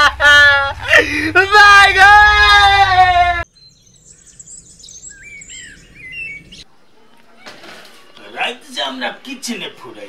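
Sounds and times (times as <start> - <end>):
bird chirps and whistles: 3.6 - 6.6.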